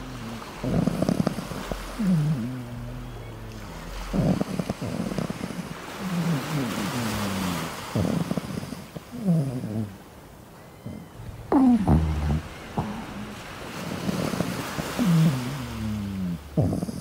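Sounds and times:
ocean surf: 0.0 - 9.2, 9.9 - 16.6
puppy grumbling and moaning: 0.0 - 10.0, 10.9 - 17.0.

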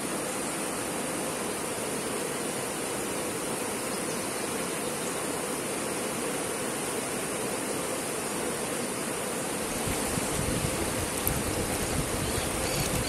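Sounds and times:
river water rushing over stones: 0.0 - 13.0.

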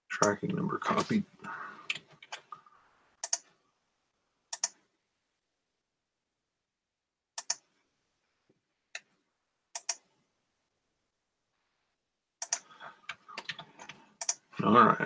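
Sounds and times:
computer mouse clicks: 3.2 - 3.5, 4.5 - 4.8, 7.4 - 7.7, 9.8 - 10.1, 12.4 - 14.5.

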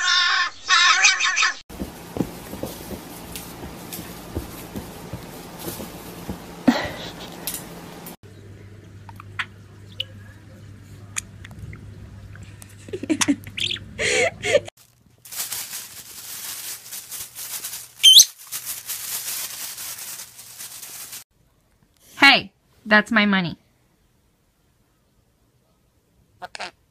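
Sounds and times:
parrot whistled call: 18.0 - 18.3
parrot chirps: 18.0 - 18.4.

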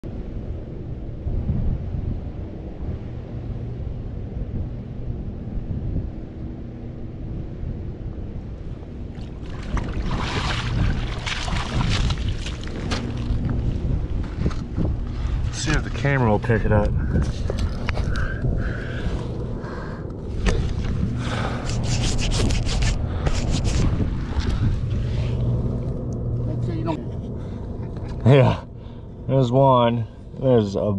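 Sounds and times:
steady low hum: 0.0 - 30.9
wind rumble on microphone: 0.0 - 30.9
water splashing and sloshing: 8.8 - 26.4
water sloshing in a pan: 9.2 - 13.3.

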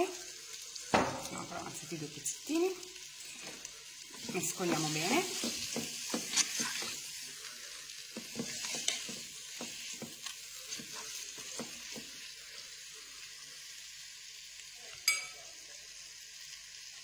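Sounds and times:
meat sizzling in hot oil: 0.0 - 17.0
utensil scraping a pot: 4.2 - 7.1, 8.2 - 11.8.

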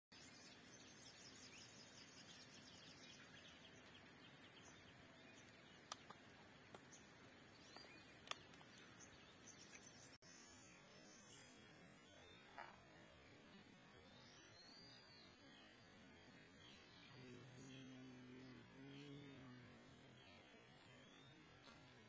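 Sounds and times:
distant birds chirping: 0.1 - 22.0
sharp clicks: 8.2 - 8.8.

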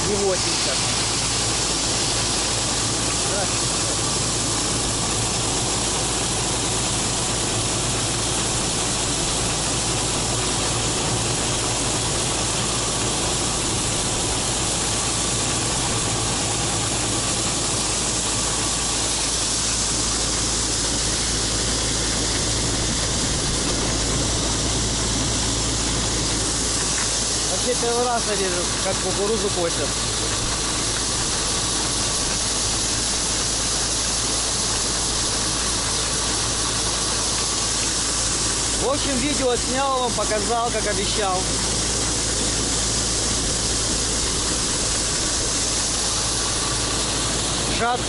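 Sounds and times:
combine harvester droning: 0.0 - 48.0.

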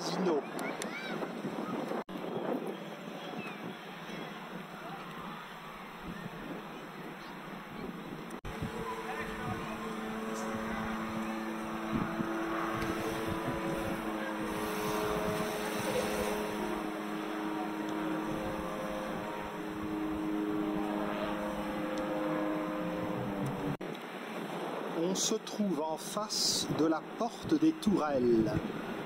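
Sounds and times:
engine running steadily: 4.8 - 23.8.

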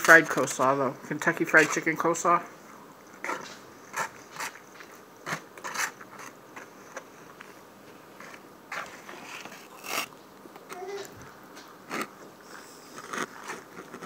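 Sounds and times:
plastic fork scraping styrofoam box: 3.2 - 7.1, 8.2 - 10.1, 11.8 - 14.0
crisp chewing crunches: 9.1 - 14.0.

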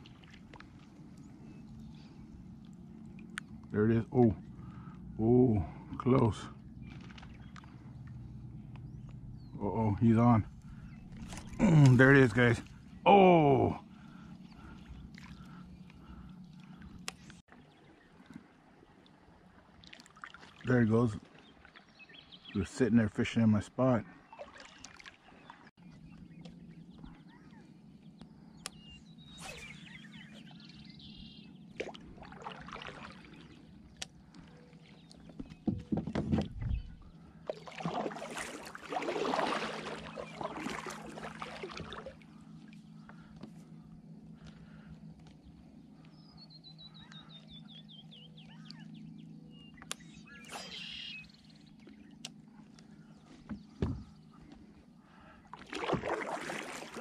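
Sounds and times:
water swishing and dripping: 0.0 - 3.8, 5.9 - 9.2, 13.6 - 21.9, 24.3 - 25.8, 31.7 - 43.4, 55.4 - 57.0
faint low hum: 0.0 - 19.5, 25.8 - 56.8
songbirds chirping: 0.0 - 57.0
paddle knocking plastic hull: 35.3 - 36.8, 53.4 - 54.1
buzzy bird trill: 46.3 - 51.5.

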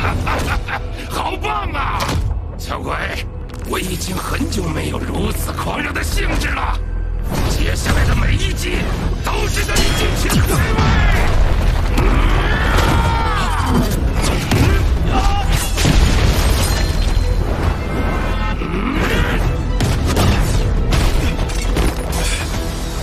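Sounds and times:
dramatic music: 0.0 - 23.0
booming impacts and blasts: 7.2 - 22.2.

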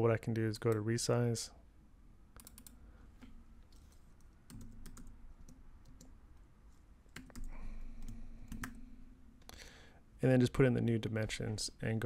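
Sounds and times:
computer keyboard keystrokes: 2.4 - 6.1, 7.1 - 8.8.

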